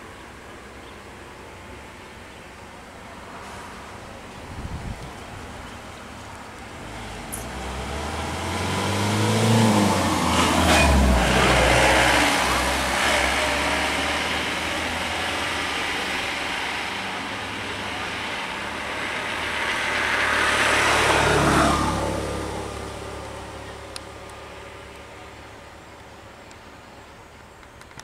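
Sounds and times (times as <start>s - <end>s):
small truck engine: 0.0s - 28.0s
scooter engine passing: 5.7s - 25.6s.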